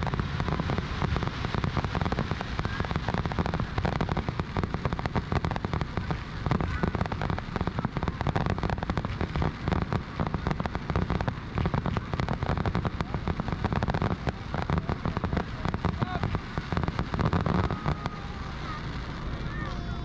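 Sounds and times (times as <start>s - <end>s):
fireworks crackling and banging: 0.0s - 20.0s
low rumble: 0.0s - 20.0s.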